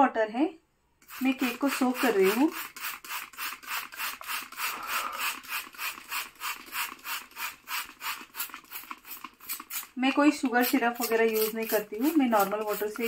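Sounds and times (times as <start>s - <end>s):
spray bottle hissing water mist: 1.0s - 13.0s.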